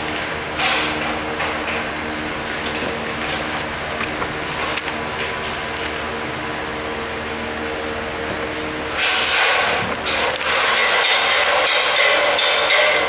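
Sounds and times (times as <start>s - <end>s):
steady low hum: 0.0s - 13.0s
paper rustling on a table: 2.7s - 6.1s.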